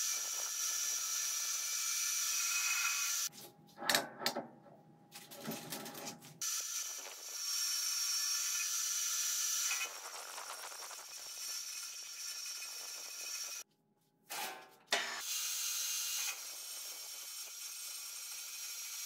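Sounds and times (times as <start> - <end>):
metal lathe cutting hiss and whistle: 0.0 - 3.3, 6.4 - 13.6, 15.2 - 19.0.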